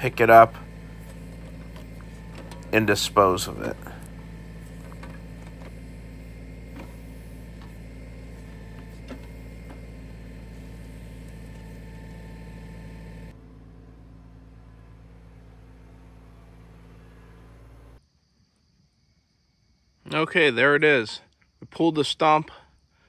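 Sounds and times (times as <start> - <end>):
tractor diesel engine running: 0.0 - 18.0.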